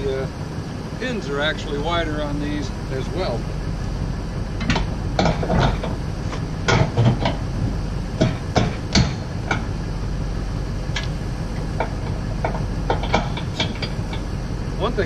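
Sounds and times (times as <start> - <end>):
steady low hum: 0.0 - 15.0
metal hitch parts clanking: 4.6 - 9.9, 10.8 - 15.0.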